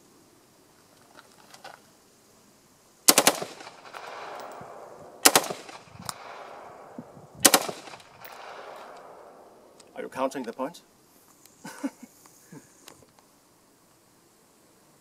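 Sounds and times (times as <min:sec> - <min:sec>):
automatic rifle bursts: 0:03.1 - 0:04.6, 0:05.2 - 0:06.5, 0:07.4 - 0:09.2.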